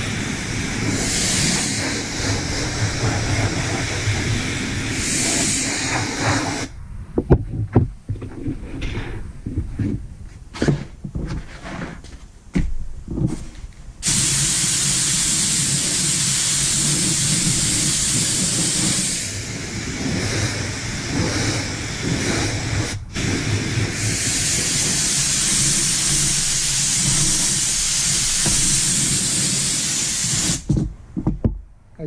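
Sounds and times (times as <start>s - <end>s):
spray gun hissing: 0.0s - 6.7s, 14.0s - 30.7s.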